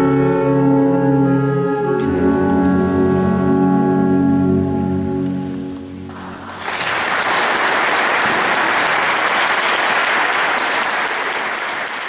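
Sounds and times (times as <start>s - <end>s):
audience applause: 6.1s - 12.0s.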